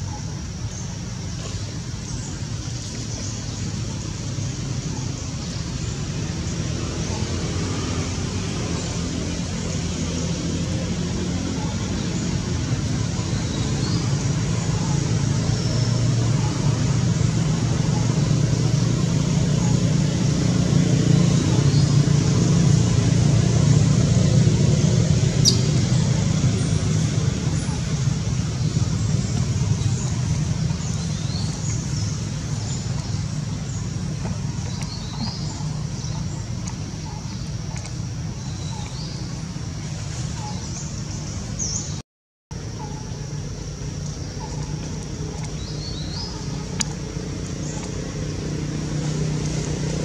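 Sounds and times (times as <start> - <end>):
steady low hum: 0.0 - 50.0
high bird chirps: 25.4 - 25.8.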